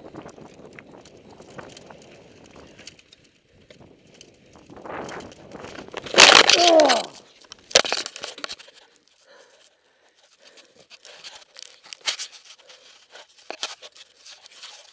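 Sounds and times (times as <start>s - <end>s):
clicks and rustles: 0.2s - 14.9s
camera knocking and scraping: 7.6s - 8.7s, 13.4s - 14.9s.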